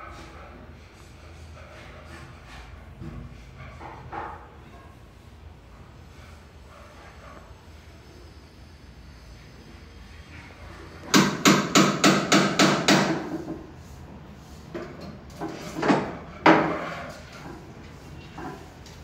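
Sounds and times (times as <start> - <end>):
hammer striking wood: 11.1 - 13.5.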